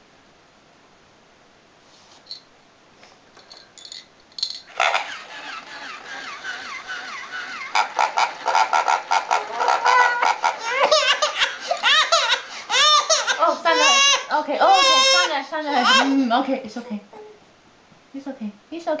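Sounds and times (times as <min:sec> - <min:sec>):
toy motor and gears clicking: 0:03.8 - 0:14.2.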